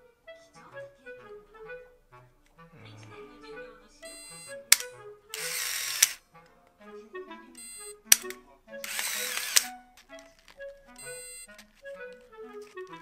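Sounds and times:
background music: 0.0s - 13.0s
film-advance motor whir: 4.2s - 6.2s, 8.1s - 9.7s
camera shutter click: 4.7s - 6.2s, 8.1s - 9.7s.

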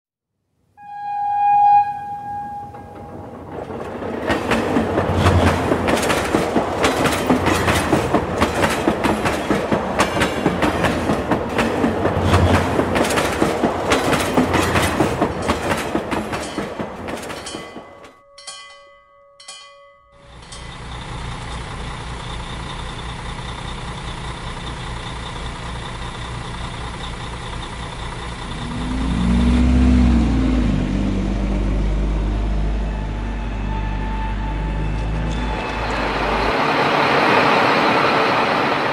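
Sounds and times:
toy train wheels clattering: 4.3s - 18.8s, 19.5s - 21.9s
engine drone: 20.2s - 38.9s.

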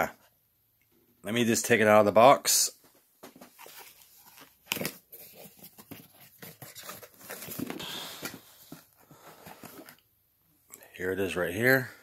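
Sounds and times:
packing material rustling: 3.5s - 8.8s.

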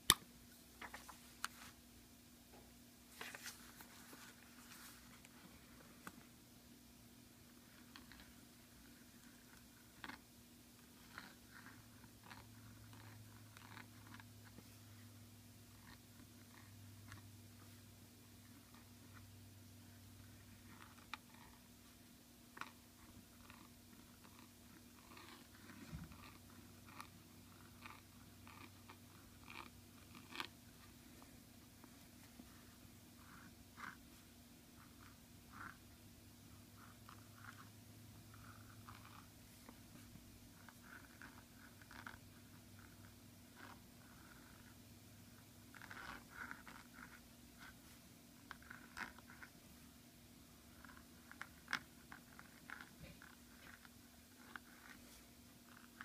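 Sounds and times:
faint low hum: 0.0s - 56.0s
pen nib scratching paper: 7.6s - 10.2s, 10.8s - 15.0s, 15.7s - 19.3s, 19.9s - 21.7s, 22.5s - 35.9s, 36.5s - 49.6s, 50.7s - 56.0s.

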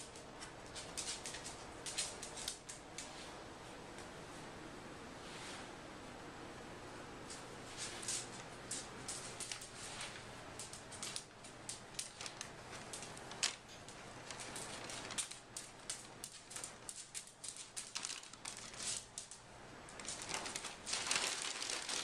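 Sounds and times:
paper crackling and crinkling: 0.0s - 3.2s, 7.7s - 22.0s.

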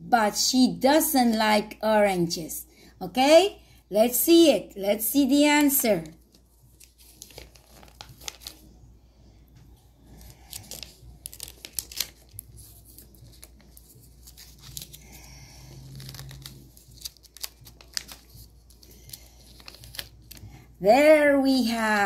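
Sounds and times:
paper crackling and rustling: 5.6s - 8.8s, 10.0s - 20.7s.

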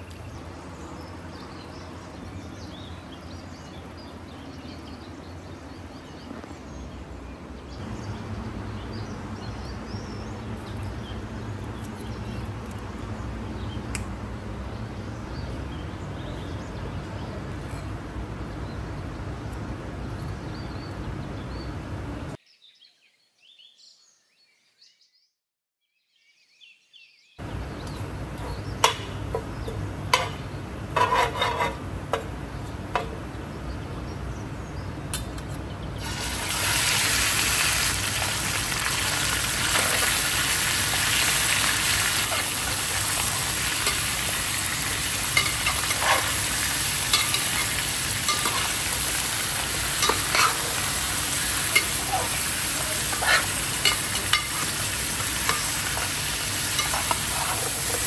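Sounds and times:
food sizzling in hot oil: 36.0s - 58.0s.

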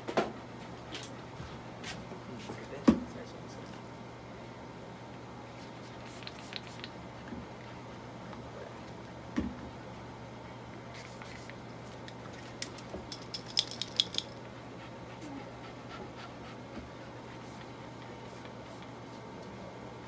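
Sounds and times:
steady low hum: 0.0s - 20.0s
metallic clicks and jingles: 13.1s - 14.4s.

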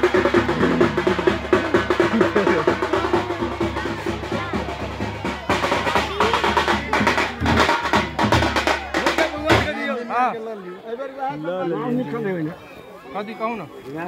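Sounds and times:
fast drumming: 0.0s - 9.8s
crowd talking: 0.0s - 14.0s.

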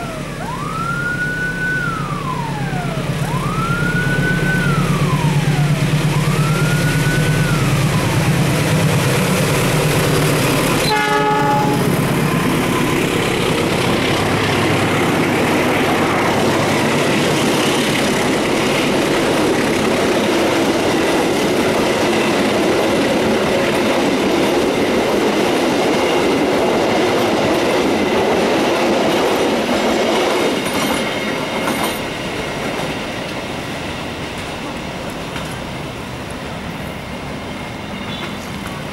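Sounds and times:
siren-like wail: 0.0s - 22.9s
locomotive engine: 0.0s - 38.9s
train coaches rumbling past: 0.0s - 38.9s
train horn blast: 10.8s - 12.4s.

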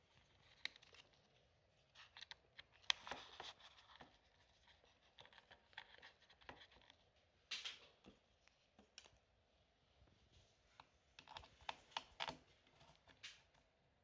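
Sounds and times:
clicks and scratches on laptop: 1.9s - 9.2s, 10.8s - 13.7s.

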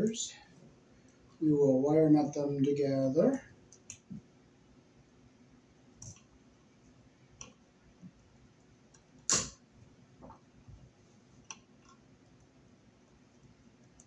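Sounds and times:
pliers and wires clicking: 9.3s - 9.6s
sharp snap: 9.3s - 9.6s.

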